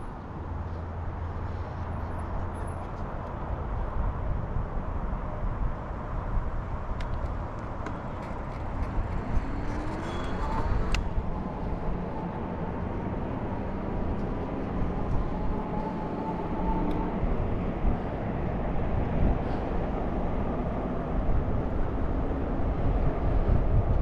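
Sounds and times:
bicycle tyre and road noise: 0.0s - 24.0s
wind on microphone: 8.2s - 24.0s.

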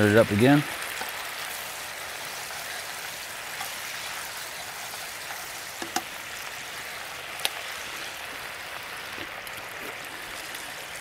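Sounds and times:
sauce sizzling in a skillet: 0.0s - 11.0s
spoon knocking against pan: 5.8s - 6.1s.

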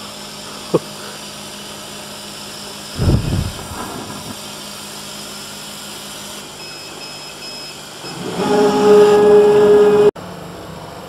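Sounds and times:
low rumble: 3.0s - 4.4s.

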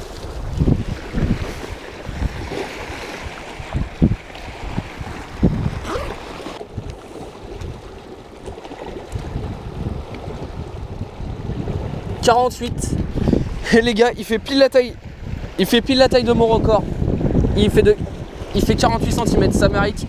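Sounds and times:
surf washing on rocks: 0.0s - 20.0s
wind buffeting microphone: 0.0s - 20.0s
clothing rubbing against microphone: 5.6s - 6.6s.

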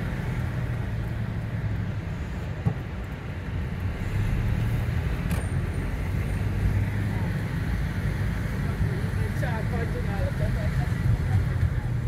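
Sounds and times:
engine and road rumble: 0.0s - 12.0s.

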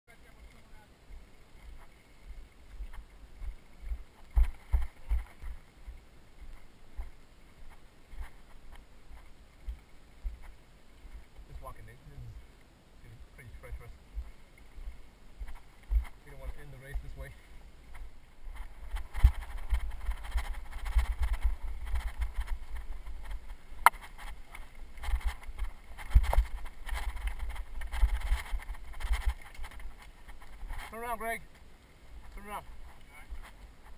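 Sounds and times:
bike rumbling over dirt trail: 18.0s - 31.0s.

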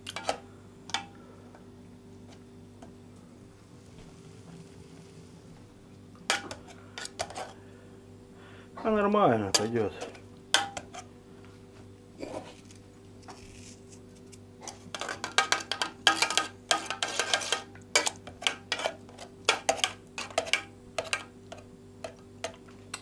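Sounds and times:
faint steady hum: 0.0s - 23.0s.

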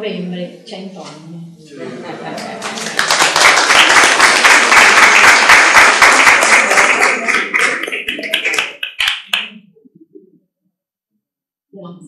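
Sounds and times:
audience applauding: 2.4s - 9.5s.

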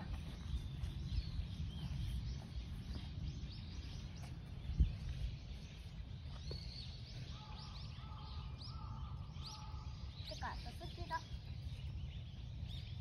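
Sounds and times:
small birds chirping: 0.0s - 13.0s
wind rumble on microphone: 0.0s - 13.0s.

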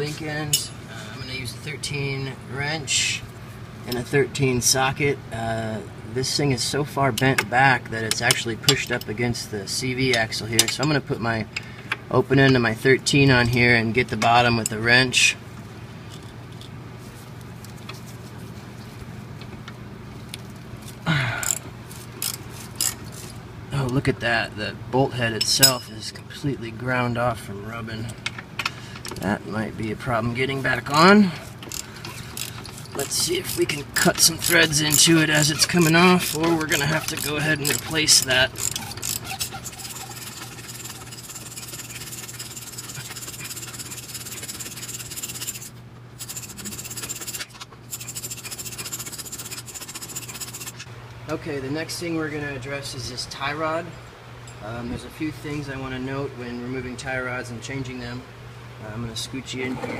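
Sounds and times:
low steady hum: 0.0s - 59.9s
wrench scraping on nut: 22.2s - 23.4s, 31.6s - 50.9s
wrench metal clicks: 34.1s - 39.5s.

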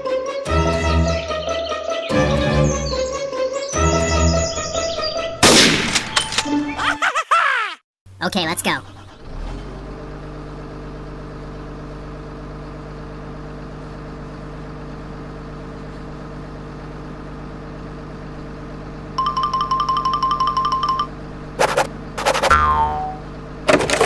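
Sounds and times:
high bell-like chiming trill: 19.2s - 21.1s
toy truck engine hum: 19.2s - 24.0s.

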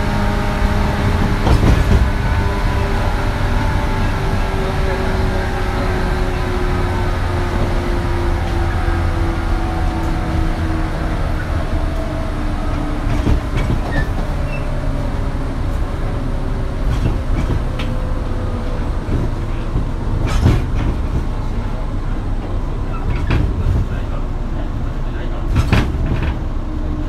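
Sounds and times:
wheels clicking over rail joints: 16.7s - 24.7s.

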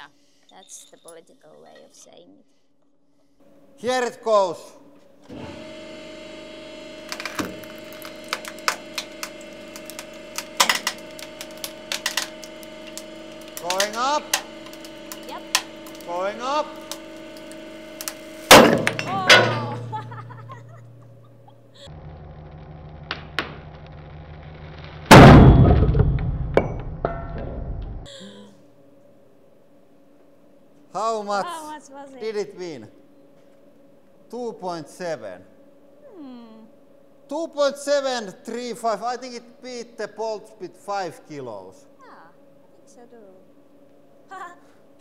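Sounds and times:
hydraulic press humming: 4.8s - 29.2s
wood cracking: 6.9s - 20.0s
duct tape tearing: 7.0s - 20.1s
steel spacers clattering: 7.1s - 21.7s.

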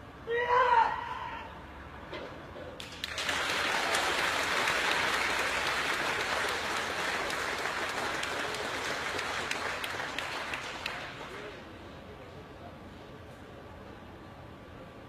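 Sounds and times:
large audience applauding: 2.8s - 11.5s.

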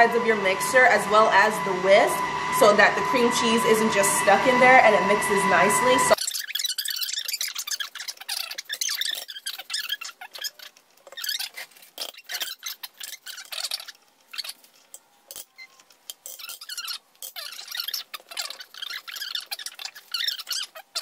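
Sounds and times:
spatula scraping metal bowl: 6.2s - 21.0s.

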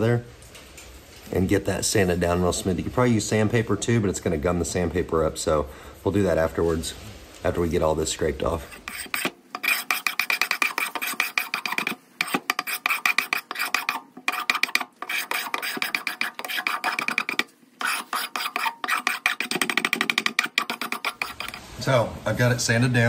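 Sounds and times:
blade scraping wooden handle: 8.5s - 21.7s.

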